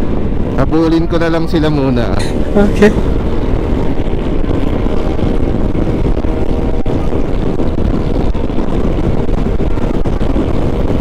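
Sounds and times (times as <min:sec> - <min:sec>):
wind rumble on microphone: 0:00.0 - 0:11.0
scooter engine running: 0:02.2 - 0:11.0.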